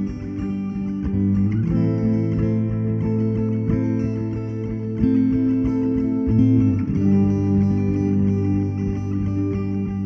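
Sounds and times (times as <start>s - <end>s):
plucked guitar music: 0.0s - 10.0s.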